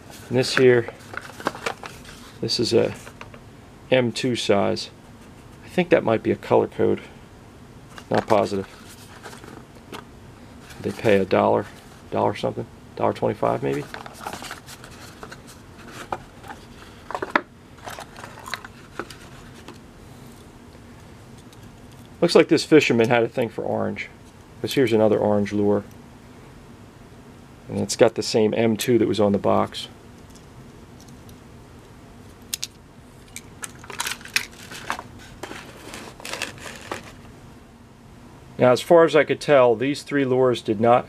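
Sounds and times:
faint low hum: 0:00.0 - 0:41.0
cardboard box scrapes: 0:35.2 - 0:37.2.

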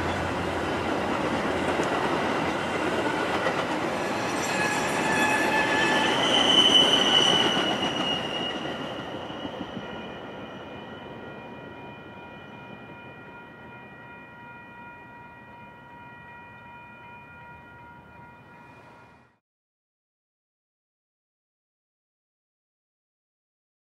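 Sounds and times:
train cars rumbling past: 0:00.0 - 0:14.5
crossing bell ringing: 0:00.0 - 0:19.4
high wheel squeal: 0:04.0 - 0:10.6.

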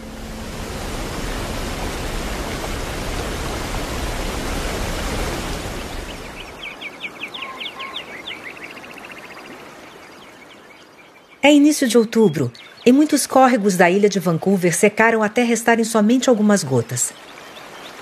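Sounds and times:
waterfall rushing: 0:00.0 - 0:09.0
river water flowing: 0:00.0 - 0:18.0
bird chirping: 0:05.7 - 0:14.2.

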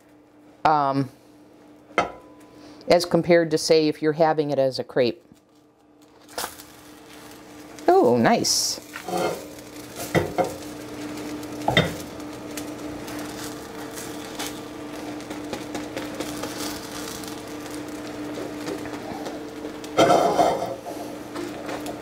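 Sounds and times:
steady hum: 0:00.0 - 0:22.0
crepe sizzling in a frying pan: 0:05.4 - 0:22.0.

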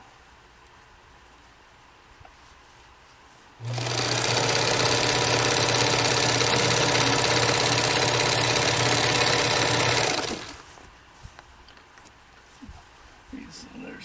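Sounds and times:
sewing machine running: 0:03.6 - 0:10.7.

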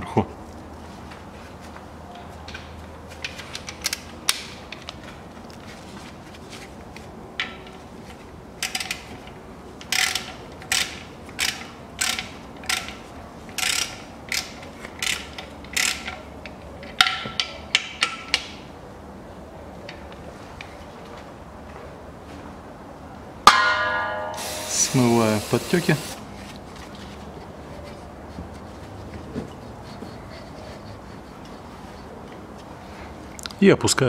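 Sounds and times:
ratchet wrench clicking: 0:09.8 - 0:16.2.

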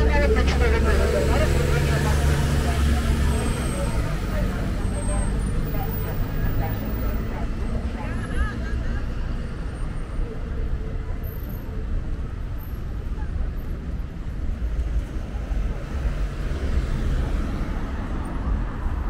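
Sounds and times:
background voices: 0:00.0 - 0:11.1
passing cars rumbling: 0:00.0 - 0:19.0.

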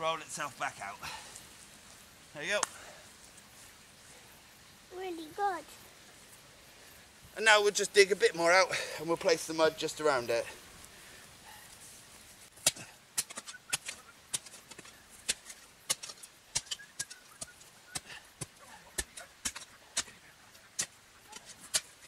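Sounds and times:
spade digging soil: 0:12.5 - 0:22.0.

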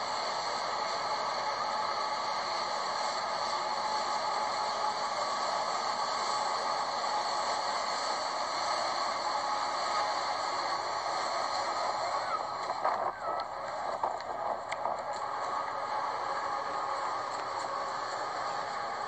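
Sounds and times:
train wheels on rail: 0:08.5 - 0:19.0.

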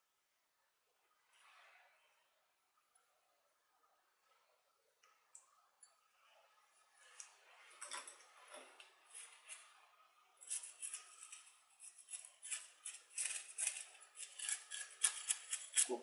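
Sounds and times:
grit scratching and crunching: 0:10.4 - 0:16.0.

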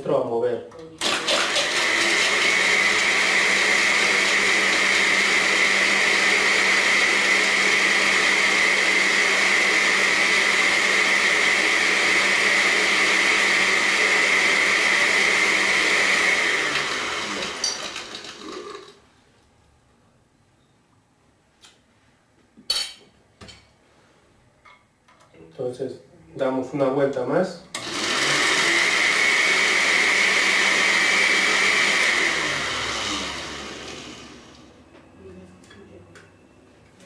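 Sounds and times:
blender motor whining: 0:01.0 - 0:19.0, 0:27.8 - 0:34.8.

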